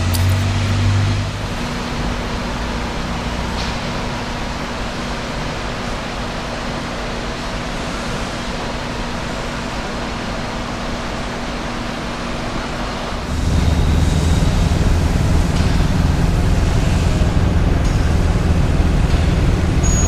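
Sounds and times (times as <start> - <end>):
forklift engine rumbling: 13.2 - 20.0.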